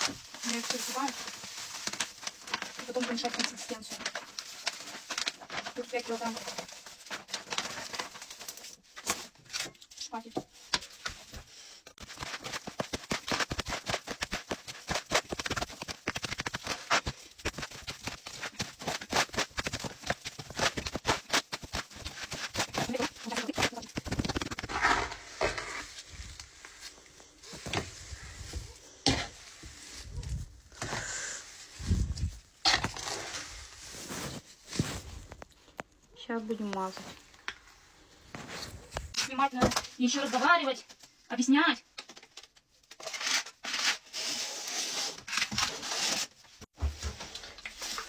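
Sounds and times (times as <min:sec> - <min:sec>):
spatula scraping brick wall: 0:11.9 - 0:26.8, 0:42.9 - 0:46.4
trowel scraping mortar in metal tub: 0:22.0 - 0:26.0, 0:32.6 - 0:33.6, 0:43.0 - 0:46.3.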